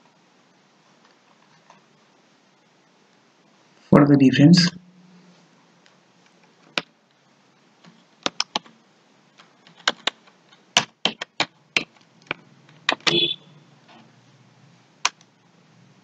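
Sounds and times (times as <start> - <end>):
typing on computer keyboard: 7.8 - 8.8, 9.4 - 13.3.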